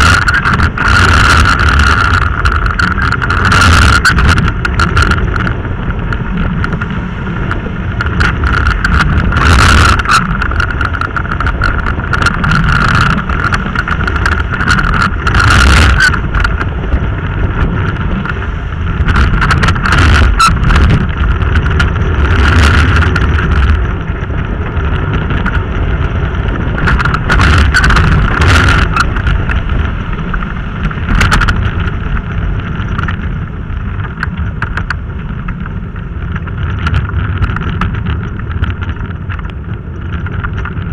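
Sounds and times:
steady high whine: 0.0 - 37.0
wheels rumbling on wet asphalt: 0.0 - 40.9
wind buffeting microphone: 0.0 - 40.9.

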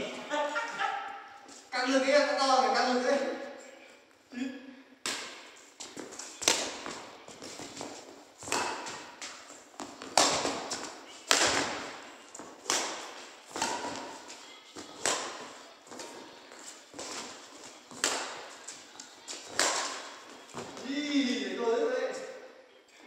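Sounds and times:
rackets striking shuttlecock: 5.0 - 21.0.

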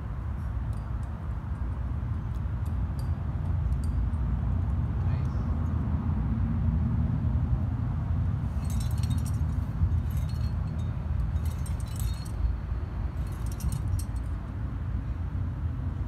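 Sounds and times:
metal climbing gear jingling: 0.3 - 4.7, 8.5 - 14.5.

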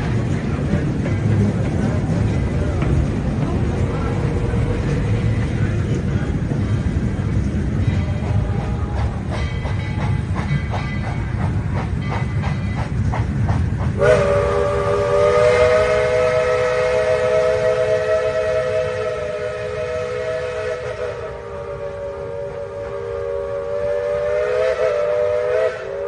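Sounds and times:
low rumble of train: 0.0 - 26.0
train wheels clickety-clack: 0.0 - 26.0
steam locomotive chime whistle: 14.0 - 26.0.

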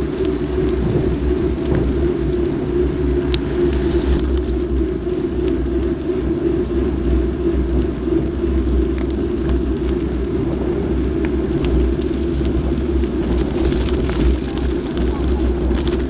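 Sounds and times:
bicycle road noise on wet road: 0.0 - 16.0
wind rumble on microphone: 0.0 - 16.0.

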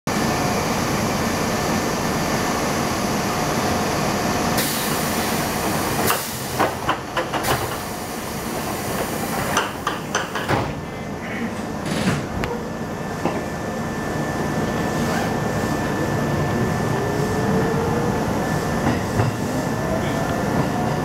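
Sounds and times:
train car rumble: 0.1 - 21.0.

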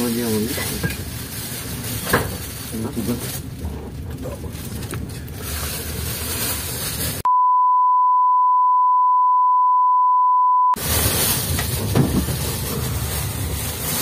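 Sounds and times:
censor bleep tone: 7.3 - 10.8.

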